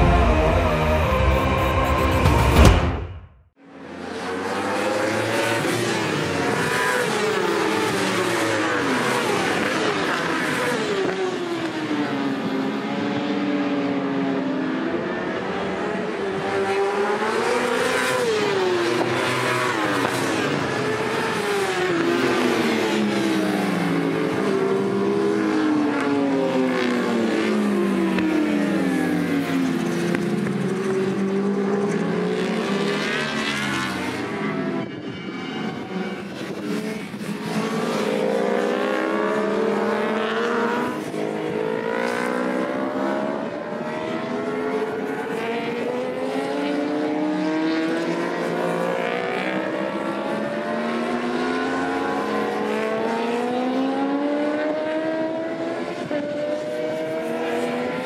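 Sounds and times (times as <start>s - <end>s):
racing motorcycle engines: 3.7s - 58.0s.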